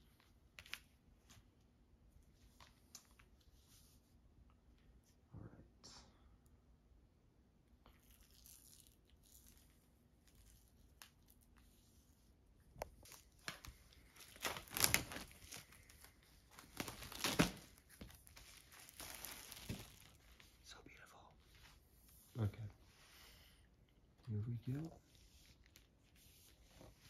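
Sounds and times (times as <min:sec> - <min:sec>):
plastic wrap tearing: 0:07.9 - 0:11.5, 0:13.0 - 0:20.2
plastic shrink-wrap rustling: 0:07.9 - 0:11.6, 0:13.0 - 0:20.4.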